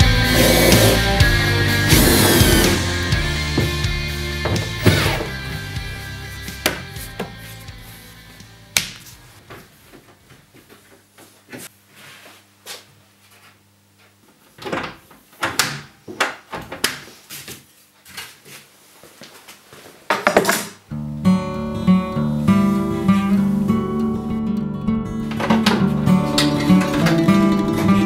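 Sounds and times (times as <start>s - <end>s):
acoustic guitar music: 0.0s - 8.7s, 20.9s - 28.0s.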